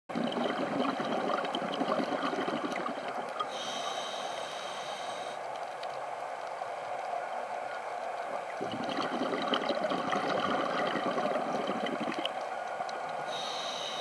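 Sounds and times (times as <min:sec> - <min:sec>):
bubbling exhalation underwater: 0:00.1 - 0:03.5, 0:08.6 - 0:12.4
regulator inhalation whistling hiss: 0:13.3 - 0:14.0.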